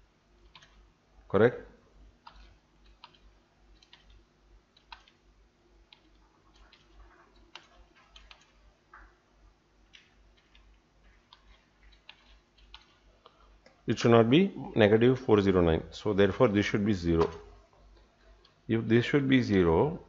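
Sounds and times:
low steady hum: 0:00.0 - 0:20.0
computer keyboard and mouse clicks: 0:00.4 - 0:00.9, 0:02.2 - 0:05.2, 0:05.9 - 0:09.2, 0:09.9 - 0:13.8.

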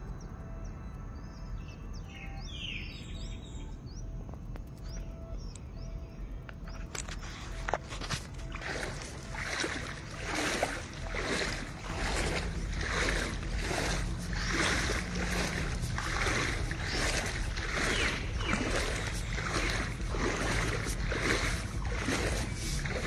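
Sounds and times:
low rumble: 0:00.0 - 0:23.0
water splashing and swishing: 0:05.9 - 0:23.0.

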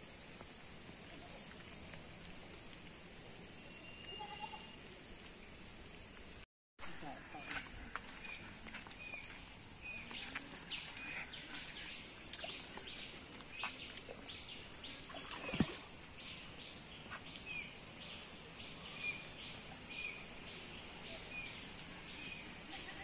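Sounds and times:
small birds chirping: 0:07.0 - 0:23.0.

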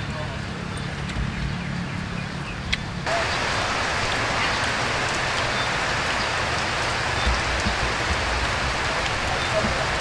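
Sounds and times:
rain hissing: 0:03.0 - 0:10.0.

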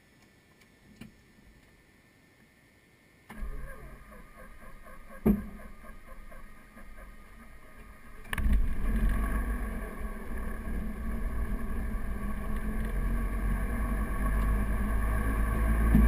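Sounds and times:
piston engine starting and running: 0:03.3 - 0:16.0.

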